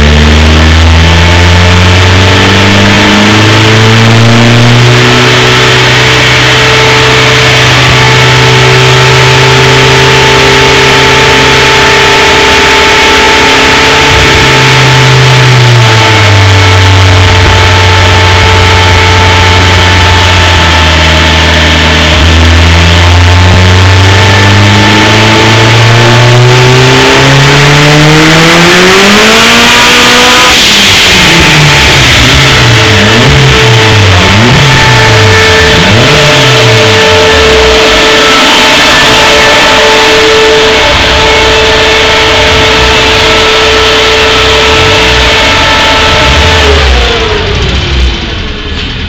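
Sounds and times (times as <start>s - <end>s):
car engine revving: 0.0s - 49.0s
steady whine: 0.0s - 49.0s.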